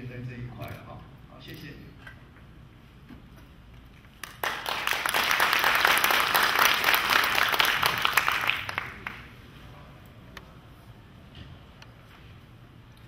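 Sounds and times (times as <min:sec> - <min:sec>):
audience applauding: 0:04.2 - 0:09.4.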